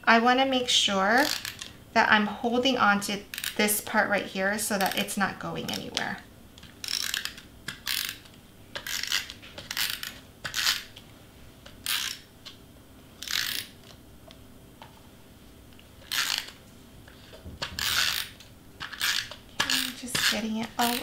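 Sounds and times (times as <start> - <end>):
adhesive roller rasping on cardstock: 6.7 - 10.9, 16.0 - 21.0.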